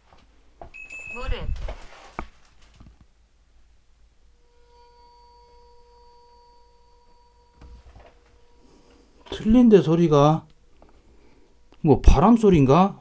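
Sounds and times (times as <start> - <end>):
metal wind bell ringing: 0.8 - 1.6.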